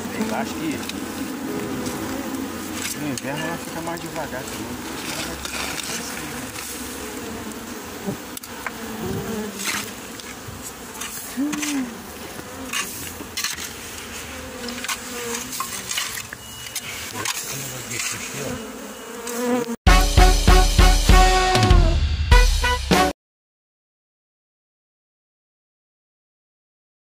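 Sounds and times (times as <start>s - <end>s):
bees buzzing: 0.0s - 21.9s.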